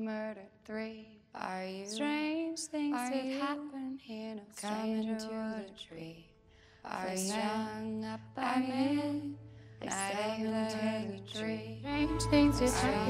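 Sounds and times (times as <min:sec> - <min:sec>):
woman singing lullaby: 0:00.0 - 0:06.2, 0:06.9 - 0:13.0
low bass drone: 0:11.9 - 0:13.0.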